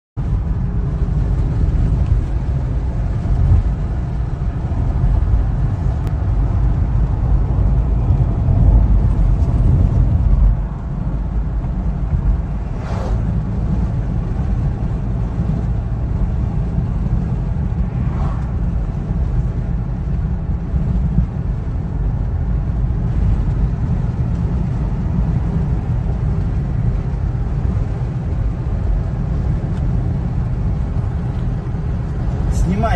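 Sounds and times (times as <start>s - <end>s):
car road and engine rumble: 0.2s - 32.9s
short higher swishes: 12.6s - 13.4s.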